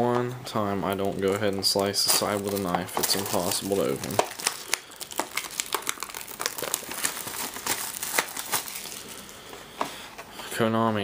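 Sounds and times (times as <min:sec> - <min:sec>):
plastic shrink wrap crinkling: 0:00.8 - 0:09.5.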